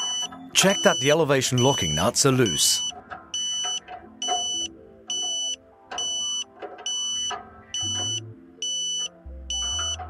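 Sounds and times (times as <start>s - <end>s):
high steady beeps: 0.0s - 10.0s
soft background music: 0.0s - 10.0s.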